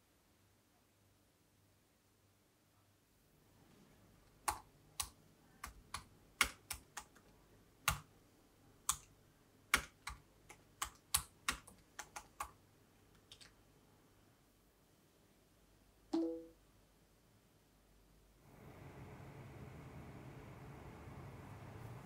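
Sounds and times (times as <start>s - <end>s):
laptop keyboard typing: 4.4s - 8.1s, 8.8s - 9.1s, 9.7s - 12.6s, 13.2s - 13.6s.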